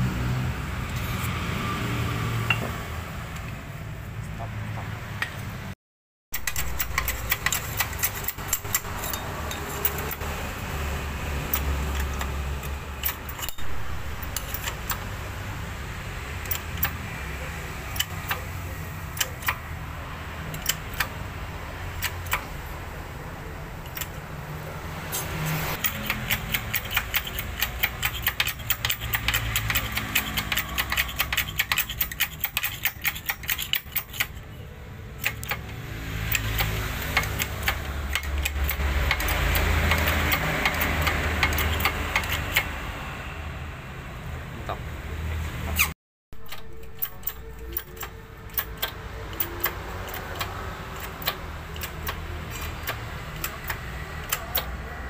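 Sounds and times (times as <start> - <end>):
metallic clicking and ticking: 6.4 - 10.3, 11.4 - 15.2, 16.4 - 17.0, 17.9 - 19.7, 20.4 - 21.2, 21.9 - 22.6, 23.8 - 24.2, 25.8 - 42.8, 46.4 - 54.9.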